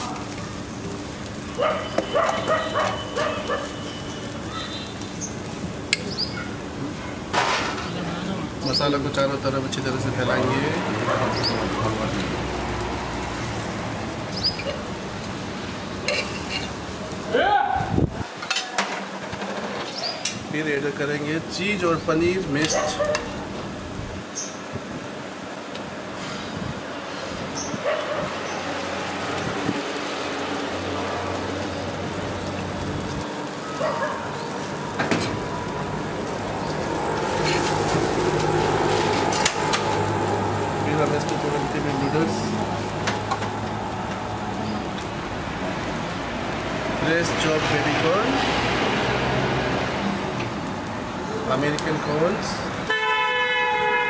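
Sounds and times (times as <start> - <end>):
sizzling on a hot griddle: 0.0 - 54.0
metal spatula scraping griddle: 16.0 - 16.8, 18.5 - 20.4, 36.6 - 40.3.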